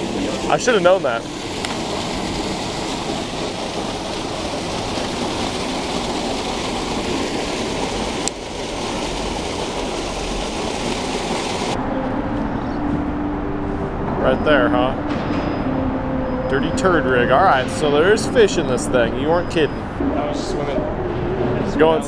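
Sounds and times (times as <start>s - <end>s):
water gushing into river: 0.0s - 11.8s.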